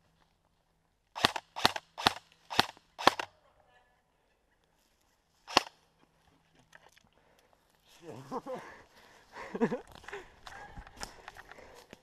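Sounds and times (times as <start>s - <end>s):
airsoft gun shots: 1.2s - 3.3s, 5.5s - 5.7s.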